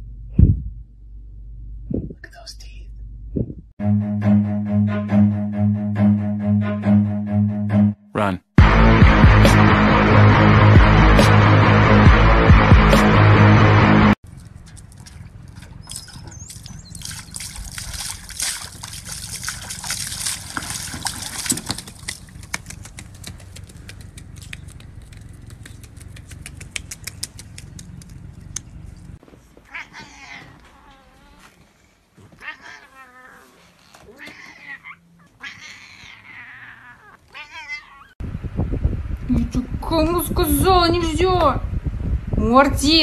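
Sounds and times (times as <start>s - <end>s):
goose splashing in water: 14.3s - 28.8s
cat meowing: 29.7s - 31.4s, 32.4s - 38.2s.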